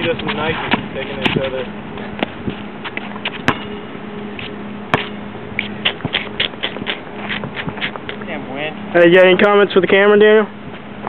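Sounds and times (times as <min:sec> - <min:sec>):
steady low hum: 0:00.0 - 0:11.0
basketball hitting rim and court: 0:02.2 - 0:05.2.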